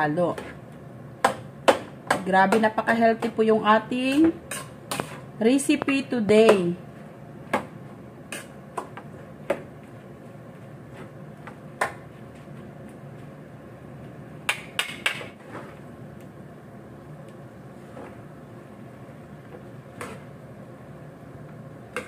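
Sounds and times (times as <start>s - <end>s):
utensils knocking and scraping pan: 4.0s - 6.7s.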